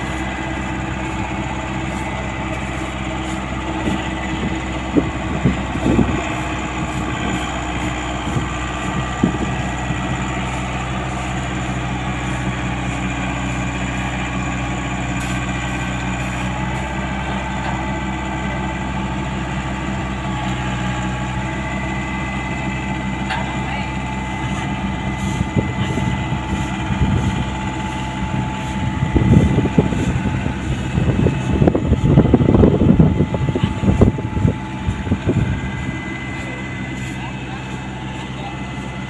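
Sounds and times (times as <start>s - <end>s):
excavator diesel engine running: 0.0s - 39.0s
uneven rumble: 24.5s - 39.0s.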